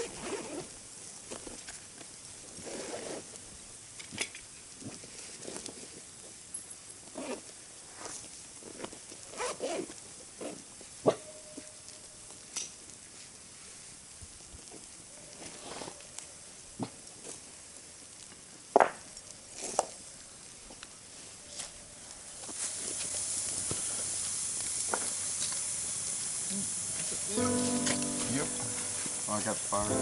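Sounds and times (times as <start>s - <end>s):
rustling of sticks: 7.8s - 18.6s, 19.3s - 30.0s.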